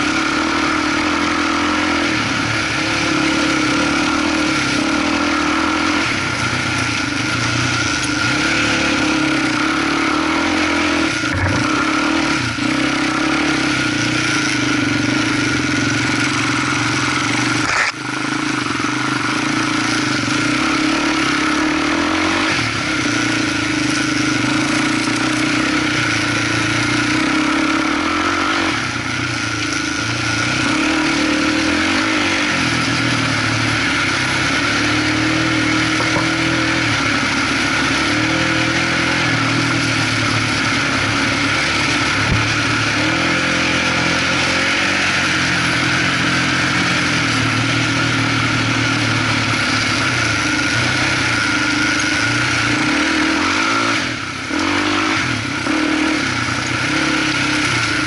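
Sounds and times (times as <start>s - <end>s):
quad engine running under load: 0.0s - 58.0s.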